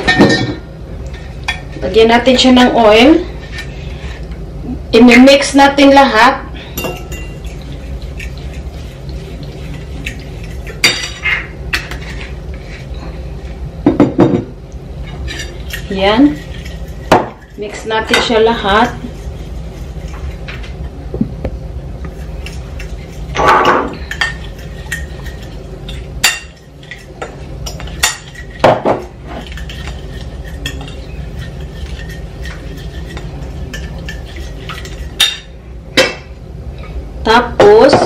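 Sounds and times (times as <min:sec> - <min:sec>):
fork clinking and scraping bowl: 0:06.8 - 0:12.9, 0:15.0 - 0:20.7, 0:22.0 - 0:35.6.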